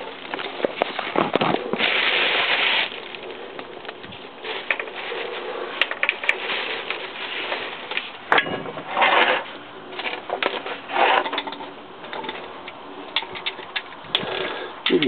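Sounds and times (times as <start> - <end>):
plastic bags crinkling: 0.0 - 11.5
noisy bursts: 0.0 - 15.0
sharp clicks and scrapes: 0.2 - 15.0.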